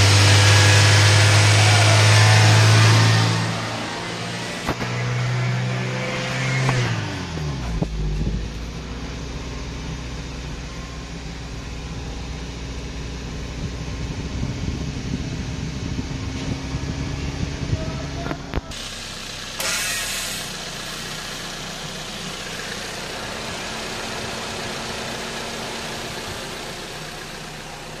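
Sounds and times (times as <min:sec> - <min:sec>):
car engine idling: 0:00.0 - 0:28.0.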